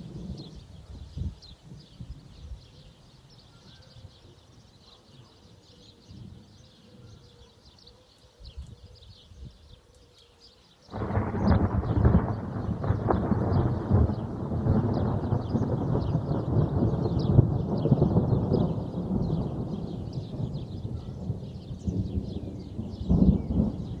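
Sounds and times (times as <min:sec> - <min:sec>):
thunder rumbling: 0:00.0 - 0:00.8, 0:10.9 - 0:24.0
birds twittering: 0:00.2 - 0:24.0
thunder clap: 0:10.9 - 0:24.0.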